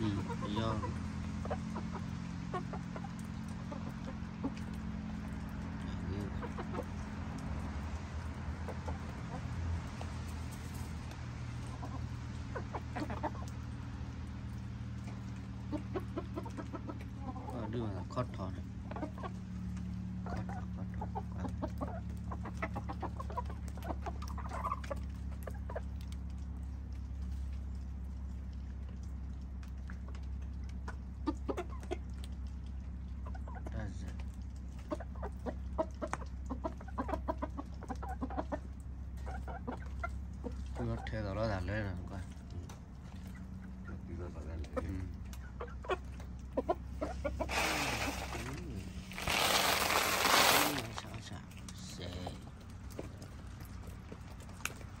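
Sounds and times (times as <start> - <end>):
chickens clucking: 0.0 - 55.0.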